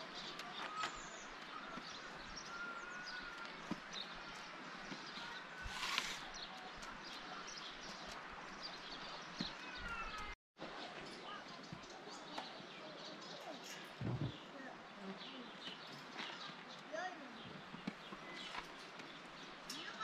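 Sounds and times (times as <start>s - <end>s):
rustling: 4.9s - 8.2s.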